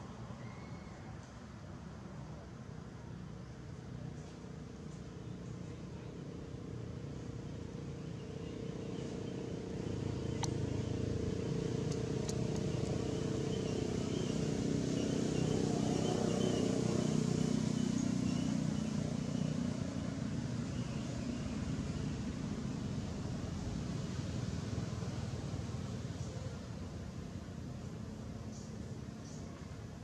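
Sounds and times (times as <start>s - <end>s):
passing motor vehicle engine rumble: 0.0s - 30.0s.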